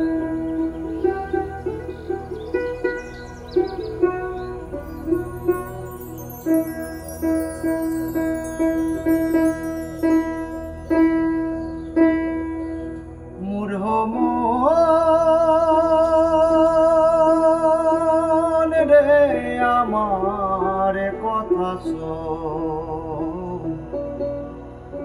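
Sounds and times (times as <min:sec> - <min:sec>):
soft accompaniment: 0:00.0 - 0:25.0
person singing: 0:13.4 - 0:24.4.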